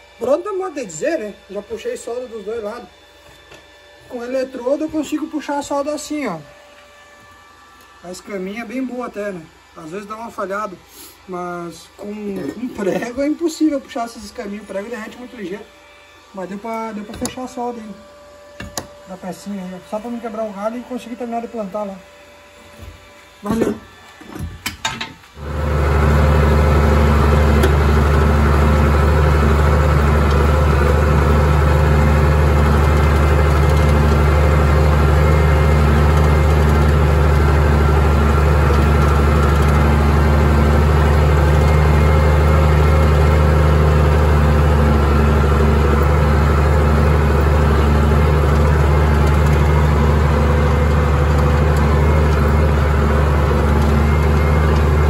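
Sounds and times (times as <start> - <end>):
tractor diesel engine running: 25.4 - 55.0.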